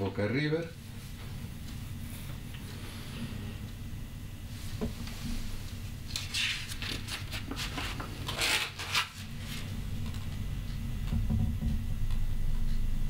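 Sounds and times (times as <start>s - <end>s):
paper rustling and sliding: 6.1s - 9.7s.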